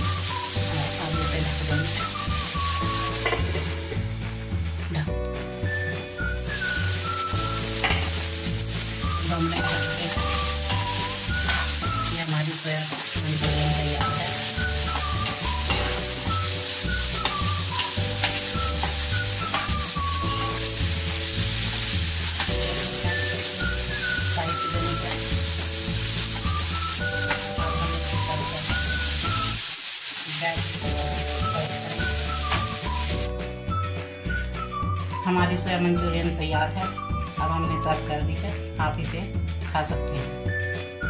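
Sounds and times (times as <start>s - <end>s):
food sizzling in a frying pan: 0.0s - 34.4s
background music: 0.0s - 41.0s
spatula stirring in a pan: 6.5s - 33.2s.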